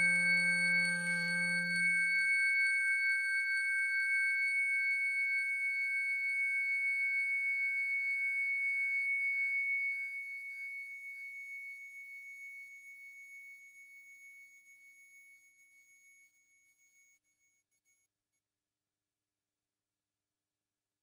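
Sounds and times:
synthesizer high pure tones: 0.0s - 1.9s.

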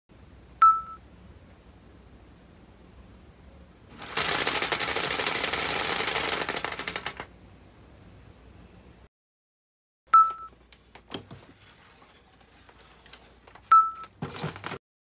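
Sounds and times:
split-flap display clacking: 4.0s - 7.3s.

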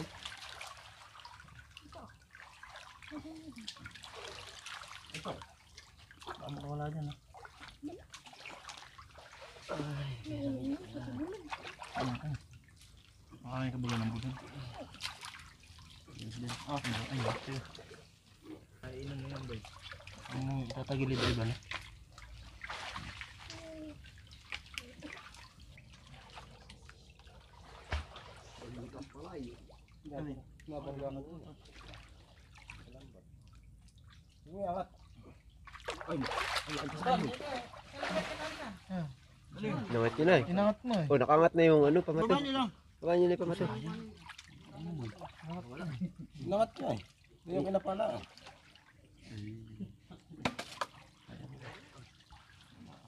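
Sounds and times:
water trickling from net: 0.0s - 49.9s, 50.8s - 53.0s
people wading through water: 0.0s - 53.0s.

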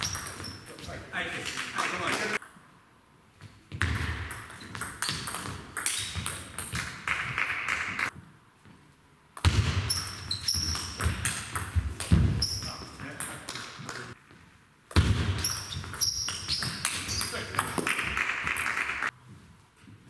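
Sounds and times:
short high squeaks: 0.0s - 0.8s, 9.9s - 11.0s, 15.4s - 17.4s.

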